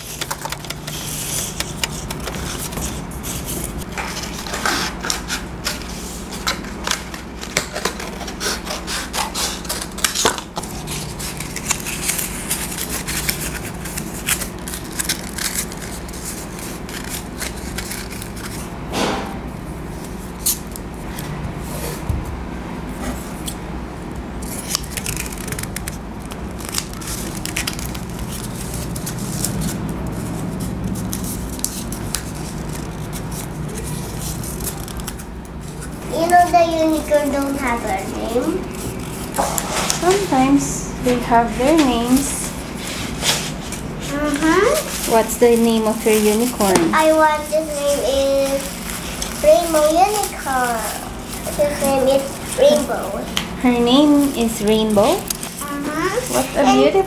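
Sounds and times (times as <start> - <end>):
masking tape handling: 0.0 - 18.6, 24.4 - 30.3, 30.9 - 38.0, 55.0 - 55.6
paper scraping and crinkling: 0.0 - 18.7, 24.4 - 57.0
steady low hum: 0.0 - 57.0.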